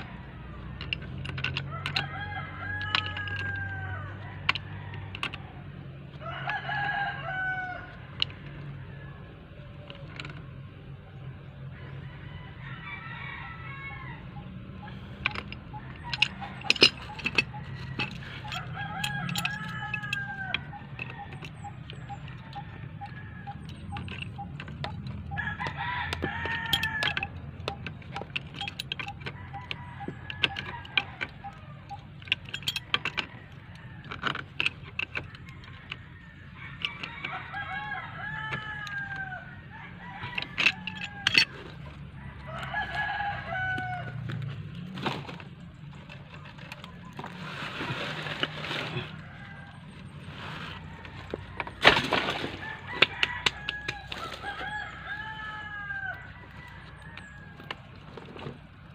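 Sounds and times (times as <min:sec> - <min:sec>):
roosters crowing: 0:00.0 - 0:58.9
pipe wrench clicking on metal: 0:15.2 - 0:36.1.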